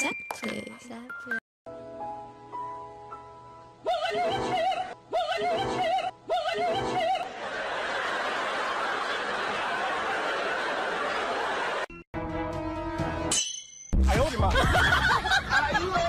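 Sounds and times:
crowd laughter: 7.2s - 11.9s, 14.4s - 16.0s.

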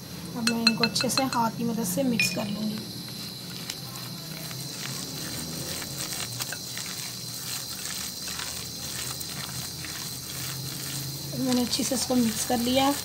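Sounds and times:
hand squelching wet mixture: 2.2s - 13.0s.

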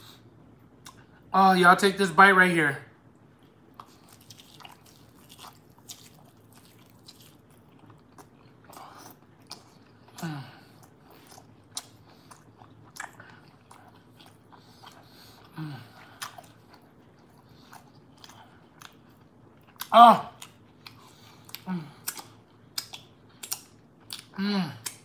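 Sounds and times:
biting and chewing: 3.7s - 25.0s
wet mouth clicks and smacks: 21.5s - 25.0s
person humming mm: 24.4s - 25.0s.

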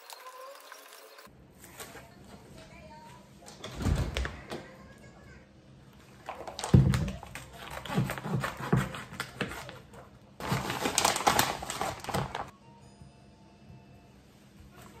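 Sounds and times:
packaging clicking and rustling: 6.2s - 8.0s, 10.4s - 12.5s.

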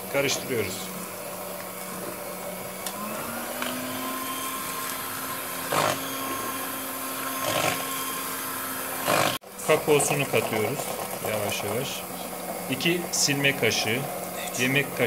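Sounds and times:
electric hand mixer whisking batter: 0.0s - 15.0s.

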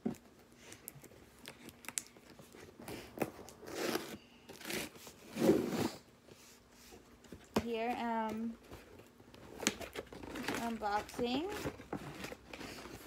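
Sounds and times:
packaging crinkling and ripping: 0.7s - 5.0s.

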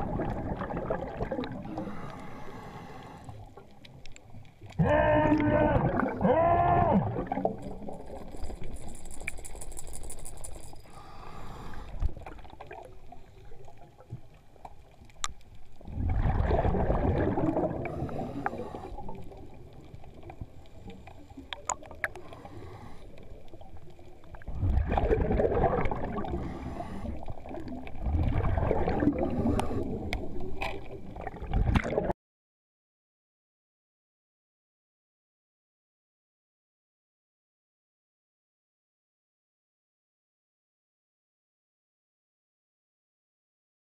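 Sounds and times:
underwater breath bubbles gurgling: 0.0s - 4.1s, 5.0s - 14.6s, 15.8s - 32.1s
underwater water noise: 0.0s - 32.2s.

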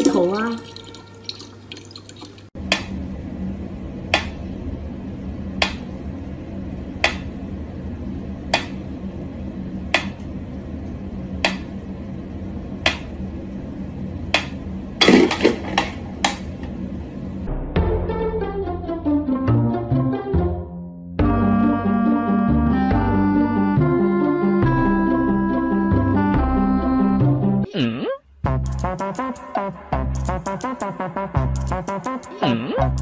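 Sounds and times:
low hum: 2.5s - 19.1s.

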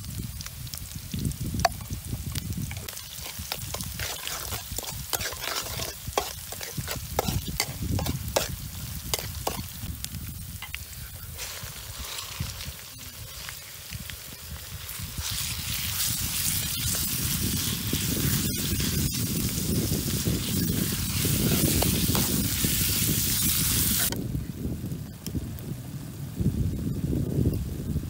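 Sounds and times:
meat sizzling in a wok: 0.0s - 26.8s
metal spatula stirring: 2.7s - 9.7s, 11.4s - 13.0s, 14.9s - 19.5s, 20.1s - 22.8s.

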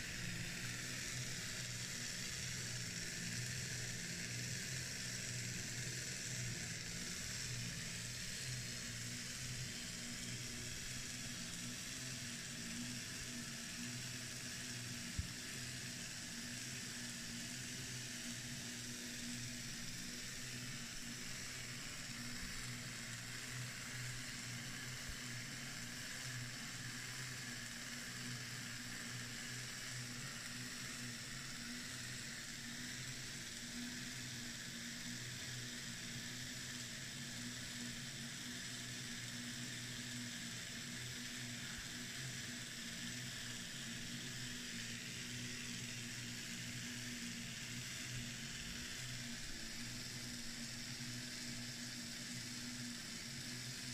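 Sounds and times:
machine humming with faint hiss: 0.0s - 53.9s.

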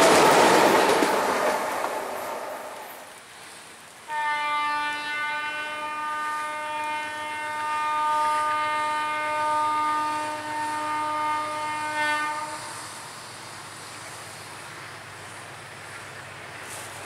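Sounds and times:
faint train rumble: 0.0s - 17.0s
locomotive air horn blast: 4.0s - 13.0s.

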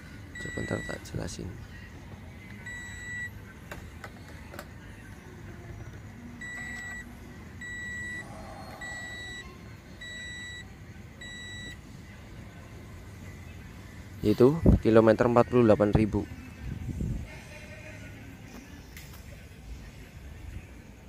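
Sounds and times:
dashboard warning chime beeping: 0.4s - 1.1s, 2.6s - 3.4s, 6.4s - 11.8s.

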